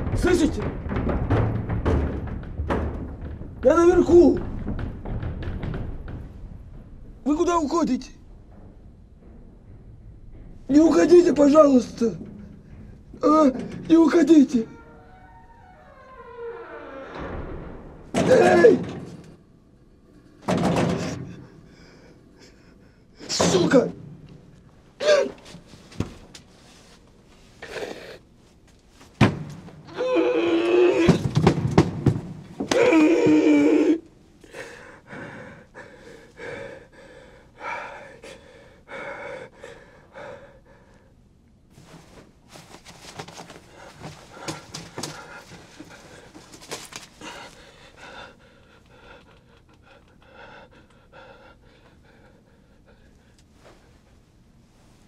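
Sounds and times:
knocks: 0.0s - 14.6s, 31.0s - 33.4s
man panting heavily: 34.4s - 41.2s, 43.7s - 53.5s
rustling: 41.7s - 47.9s.

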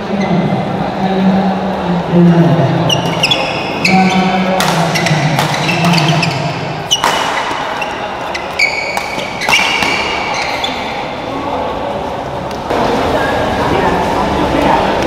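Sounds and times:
sneakers squeaking on court floor: 2.8s - 11.2s
rackets striking shuttlecock: 4.4s - 10.4s.

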